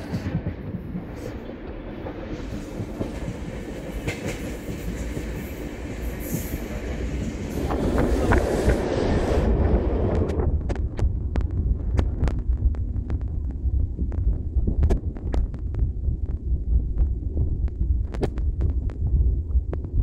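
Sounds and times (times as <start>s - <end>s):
train wheels clicking: 0.0s - 11.1s
train wheels rumbling on rails: 0.0s - 20.0s.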